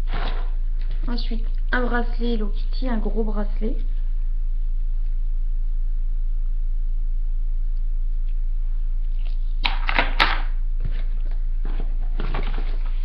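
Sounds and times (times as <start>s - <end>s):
electrical mains hum: 0.0s - 13.0s
packaging rustling and clicking: 11.6s - 13.0s.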